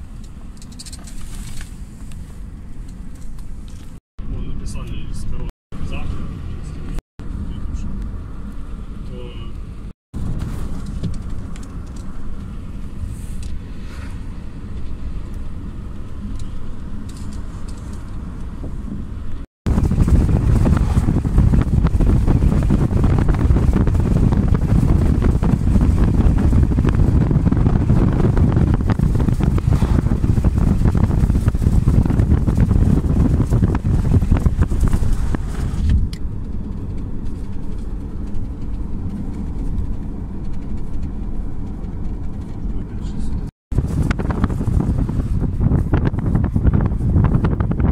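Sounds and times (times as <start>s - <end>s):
car road noise from cabin: 0.0s - 47.9s
wind rush: 9.7s - 47.9s.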